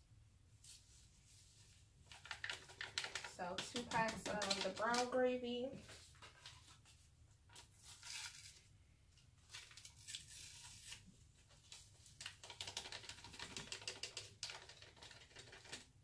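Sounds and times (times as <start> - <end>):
seasoning packets crinkling: 2.1 - 5.4.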